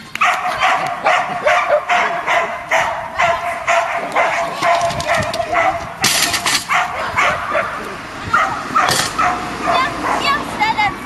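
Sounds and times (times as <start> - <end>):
dog barking: 0.2 - 10.5.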